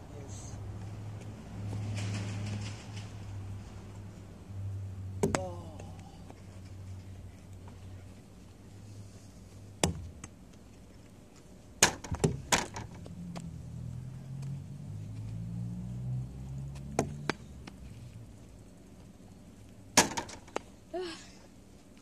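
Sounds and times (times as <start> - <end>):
sharp knocks: 9.8 - 10.1, 11.8 - 13.0, 20.0 - 20.6.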